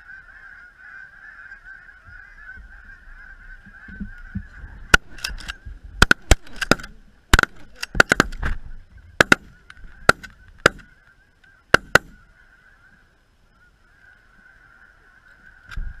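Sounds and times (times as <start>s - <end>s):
flock of geese honking: 0.0s - 5.7s, 8.4s - 16.0s
shotgun blasts: 4.9s - 8.5s, 9.2s - 10.9s, 11.7s - 12.2s.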